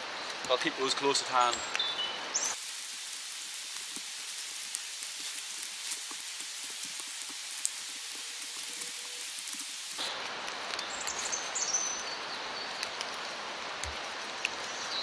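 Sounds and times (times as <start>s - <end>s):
rain falling: 0.0s - 15.0s
bird chirping: 1.4s - 2.6s
sticks knocking and rustling: 2.6s - 10.1s.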